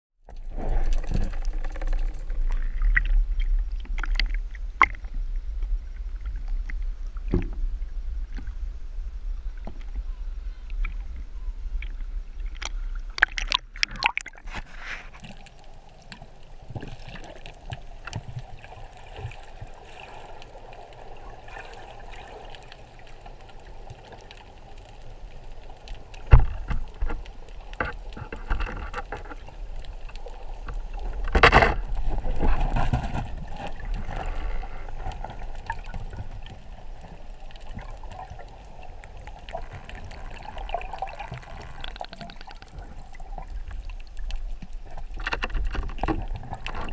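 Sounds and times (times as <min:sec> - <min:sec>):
underwater rumble of moving water: 0:00.2 - 0:46.9
underwater clicks: 0:00.8 - 0:05.1, 0:11.8 - 0:14.6, 0:25.9 - 0:46.9.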